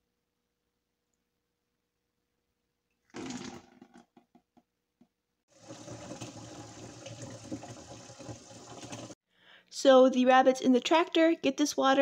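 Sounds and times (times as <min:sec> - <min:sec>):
faucet water filling plastic jug: 0:03.1 - 0:04.2, 0:05.5 - 0:09.2.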